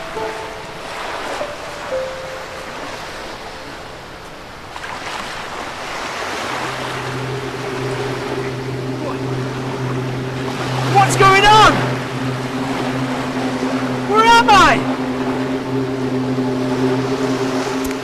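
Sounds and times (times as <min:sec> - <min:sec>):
waves breaking on a beach: 0:00.0 - 0:18.0
wind: 0:00.0 - 0:18.0
steady low hum: 0:05.7 - 0:18.0.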